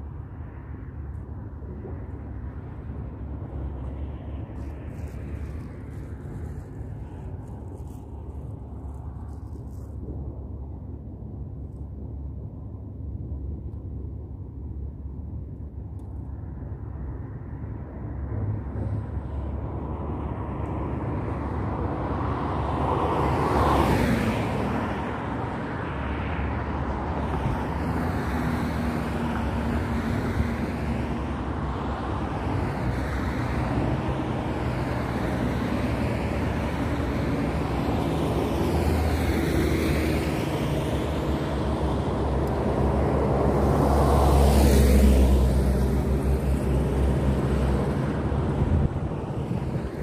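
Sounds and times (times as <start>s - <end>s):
road traffic passing: 0.0s - 50.0s.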